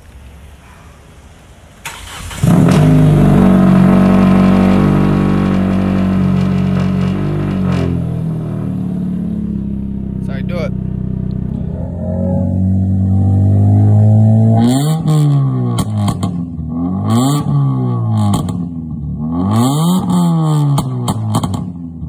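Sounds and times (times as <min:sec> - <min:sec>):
car engine idling: 0:00.0 - 0:16.8
car engine cranking and starting: 0:01.4 - 0:21.8.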